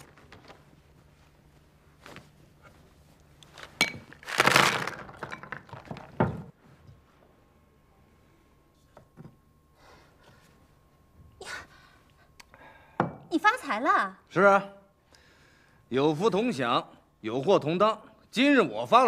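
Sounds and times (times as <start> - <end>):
clatter of bag contents: 3.6 - 6.2.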